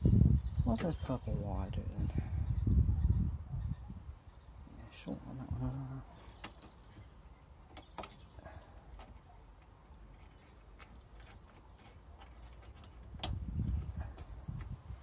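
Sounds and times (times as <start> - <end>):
short high beeps: 2.7 - 3.0, 4.4 - 4.8, 6.2 - 6.6, 10.0 - 10.3
handling clicks and knocks: 6.4 - 13.4.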